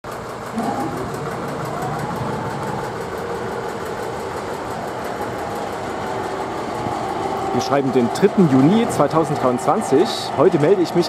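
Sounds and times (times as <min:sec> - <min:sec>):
diesel locomotive idling: 0:00.0 - 0:11.0
turntable whine: 0:00.1 - 0:09.1.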